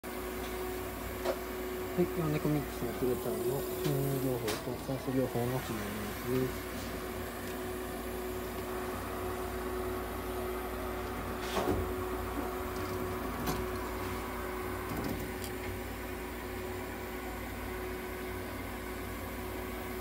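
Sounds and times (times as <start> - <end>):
nebulizer humming: 1.6 - 16.6.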